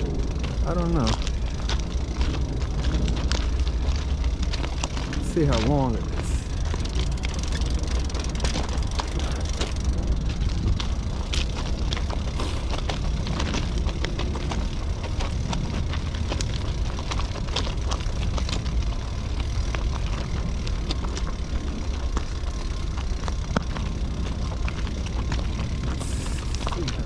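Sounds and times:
freight train rumble: 0.0s - 27.0s
wheel clicks and clanks: 0.0s - 27.0s.

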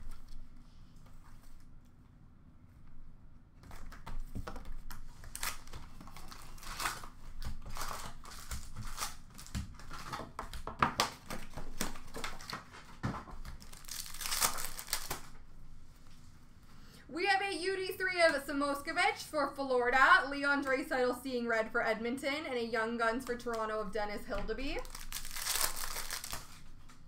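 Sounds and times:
plastic wrap and cardboard tearing: 4.6s - 15.4s, 24.8s - 26.8s
foil packs rustling: 5.1s - 15.4s, 24.7s - 27.0s.

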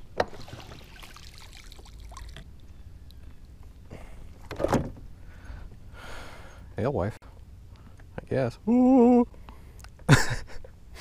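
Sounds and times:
water splashing and dripping: 0.0s - 3.2s.

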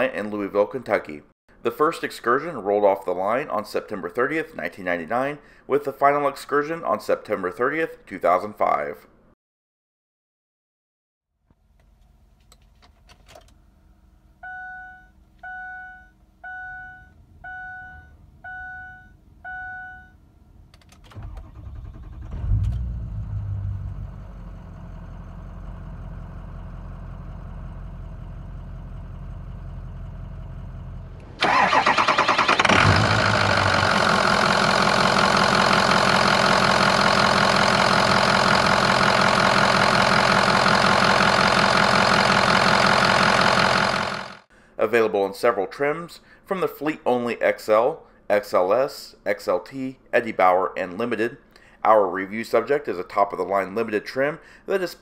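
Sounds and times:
dashboard warning chime: 14.4s - 20.2s
diesel engine starting and idling: 20.6s - 44.5s.

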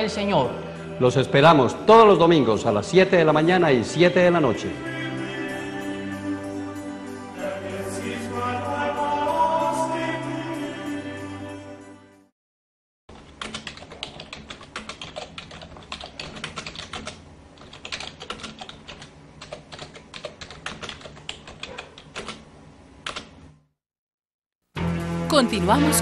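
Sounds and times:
keyboard typing clicks: 13.2s - 22.4s.

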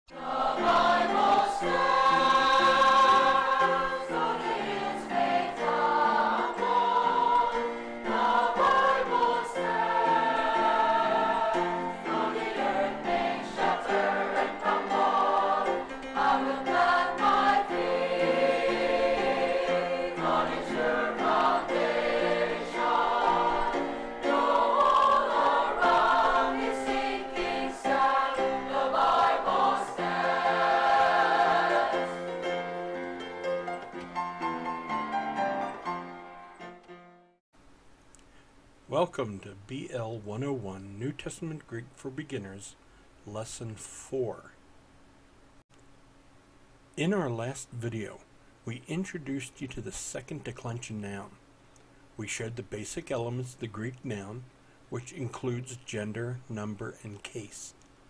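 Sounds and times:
choir singing: 0.1s - 33.9s.

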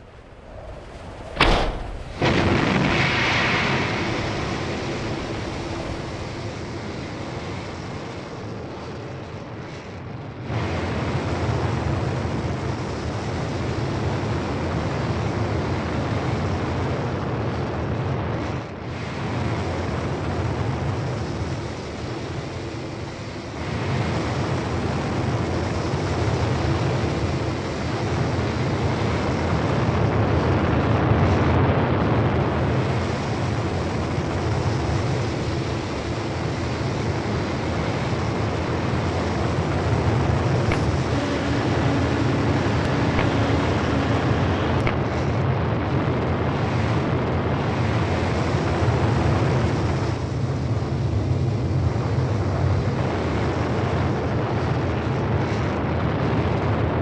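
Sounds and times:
rushing rocket noise: 0.0s - 28.5s, 29.1s - 57.0s
sharp bang: 1.2s - 6.4s, 40.7s - 45.0s.

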